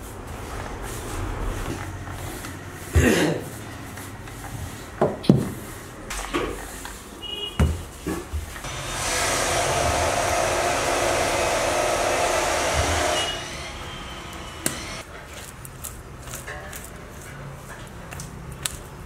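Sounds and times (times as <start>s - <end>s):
machine whirring: 8.6s - 15.0s.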